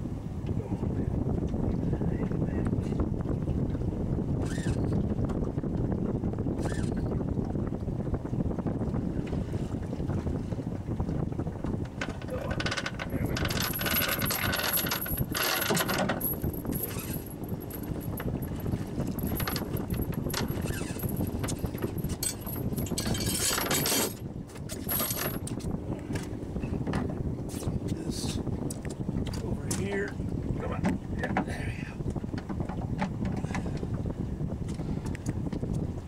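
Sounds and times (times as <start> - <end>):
wind on microphone: 0.0 - 36.0
fishing reel drag buzzing: 12.8 - 18.1, 19.2 - 22.3.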